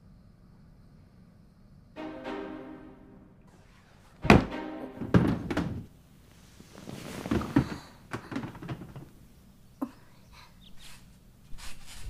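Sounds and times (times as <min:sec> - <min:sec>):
music: 0:02.0 - 0:05.9
loud thunk: 0:04.2 - 0:05.8.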